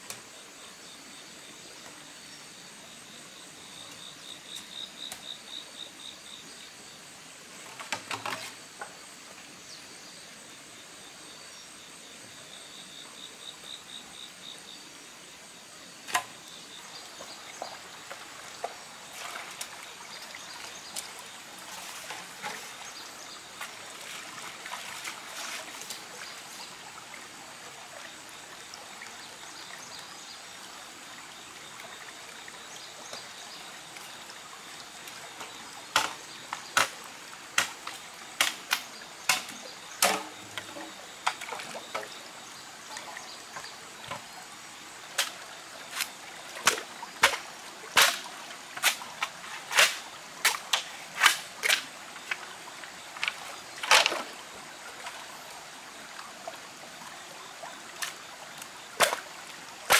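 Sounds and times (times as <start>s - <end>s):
stream trickling over rocks: 0.0s - 59.9s
bamboo poles knocking and clattering: 7.6s - 9.0s, 16.1s - 16.4s, 35.4s - 37.0s, 37.6s - 42.2s, 46.0s - 47.4s, 48.0s - 52.4s, 53.2s - 54.3s, 59.0s - 59.3s.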